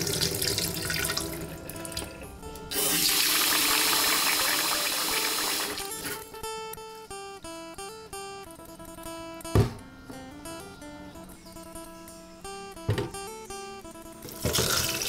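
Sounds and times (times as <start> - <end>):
kitchen tap running into bowl: 0.0 - 6.2, 14.3 - 15.0.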